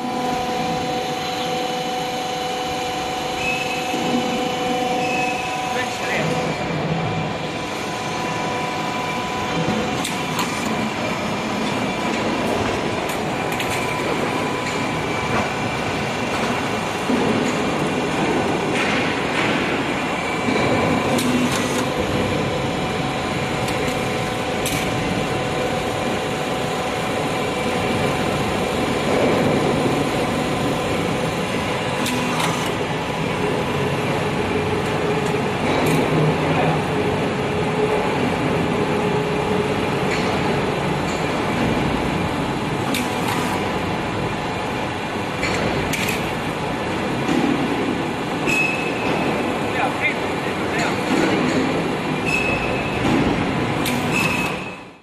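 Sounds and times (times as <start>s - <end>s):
roll forming machine drone: 0.0s - 55.0s
sharp mechanical knocks: 17.0s - 22.0s, 31.9s - 32.8s, 51.0s - 54.8s.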